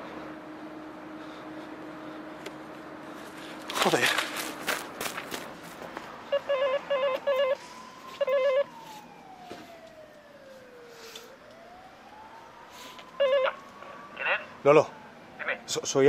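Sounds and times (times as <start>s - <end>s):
intercom warbling call tone: 6.3s - 7.6s, 8.2s - 8.7s, 13.2s - 14.7s, 15.4s - 15.7s.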